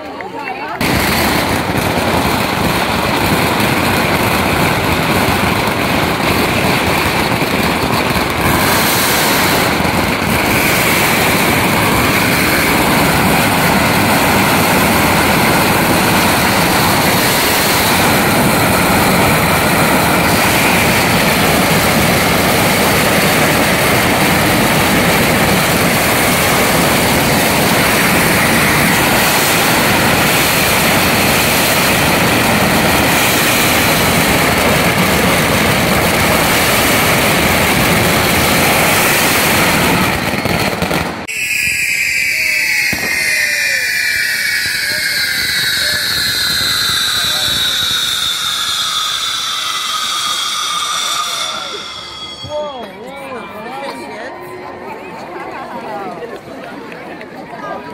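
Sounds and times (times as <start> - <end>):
pyrotechnics roaring: 0.1 - 53.0.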